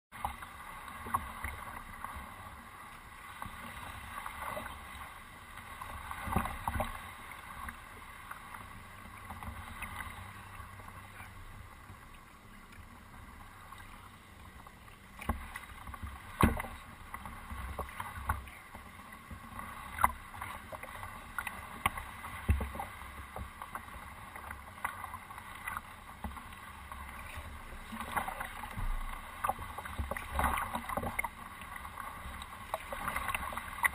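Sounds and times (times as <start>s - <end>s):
water wash on canoe hull: 0.1s - 33.9s
sharp knocks on hull: 16.4s - 16.8s.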